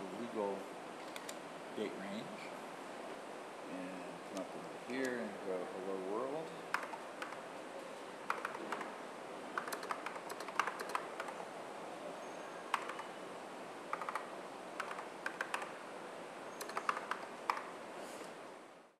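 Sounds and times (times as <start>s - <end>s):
keyboard typing clicks: 1.0s - 1.4s, 6.7s - 7.4s, 8.3s - 8.9s, 9.6s - 11.4s, 12.7s - 13.1s, 13.9s - 15.7s, 16.6s - 17.7s.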